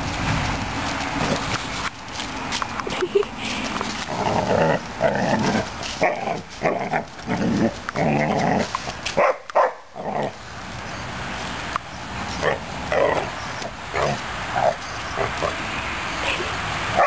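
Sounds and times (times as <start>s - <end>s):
puppy play-growling and barking: 1.0s - 1.9s, 3.9s - 10.4s, 12.3s - 15.6s.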